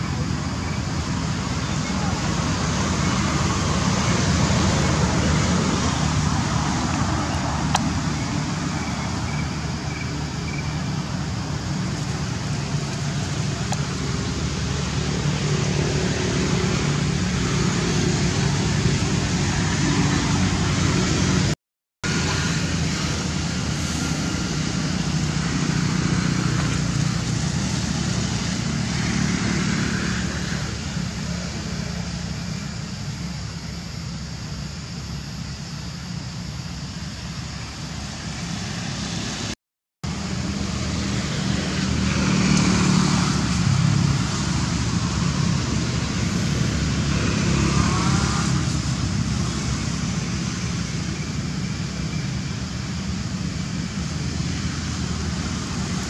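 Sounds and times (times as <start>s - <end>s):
low rumbling background noise: 0.0s - 21.5s.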